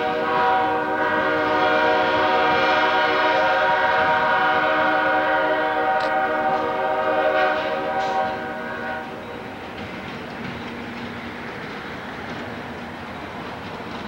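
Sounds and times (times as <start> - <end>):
locomotive air horn: 0.0 - 9.2
train running: 0.0 - 14.0.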